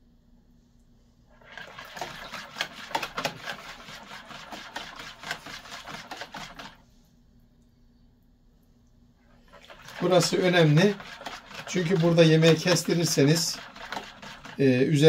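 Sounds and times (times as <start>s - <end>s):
whisk beating in plastic bowl: 1.3s - 6.9s, 9.3s - 15.0s.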